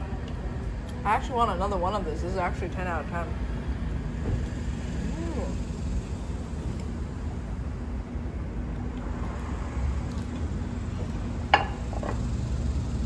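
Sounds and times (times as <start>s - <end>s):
street traffic rumble: 0.0s - 13.0s
plate clinking on plate: 11.6s - 12.2s.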